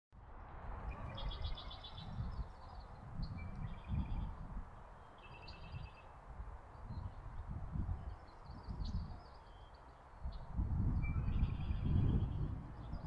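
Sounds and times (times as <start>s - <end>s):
songbirds trilling: 0.9s - 13.0s.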